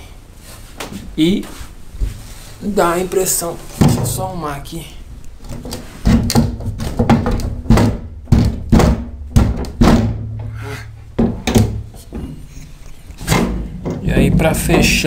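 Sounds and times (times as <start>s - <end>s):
wooden window frame knocks: 5.5s - 10.5s, 11.2s - 11.9s.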